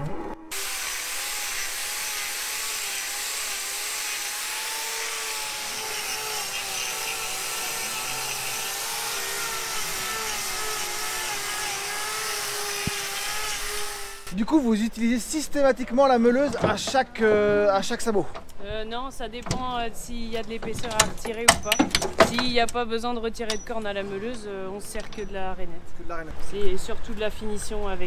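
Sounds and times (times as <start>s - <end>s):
angle grinder grinding hoof: 0.0s - 14.4s.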